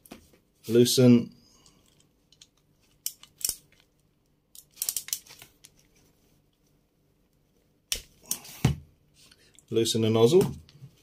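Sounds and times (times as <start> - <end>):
small metal tool clicks and scrapes: 4.5 - 5.4.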